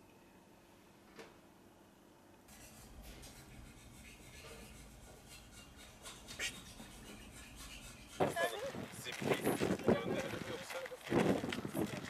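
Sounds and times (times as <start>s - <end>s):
faint rustling and scraping: 2.5s - 12.0s.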